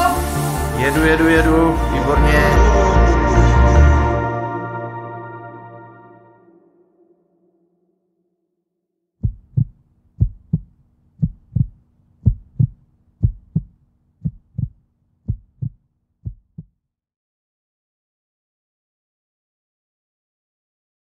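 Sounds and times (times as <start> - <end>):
heartbeat thumps: 9.2 - 16.7.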